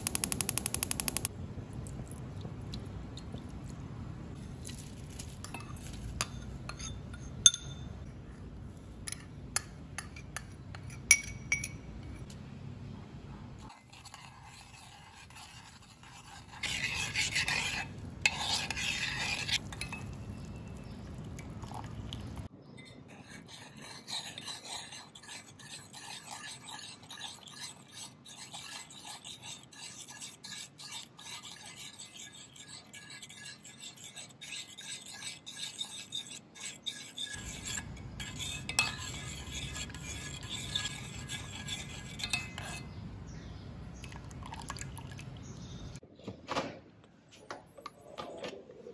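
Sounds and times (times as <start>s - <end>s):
metal spoon scraping saucepan: 0.1s - 1.2s, 13.6s - 21.0s, 22.8s - 43.0s.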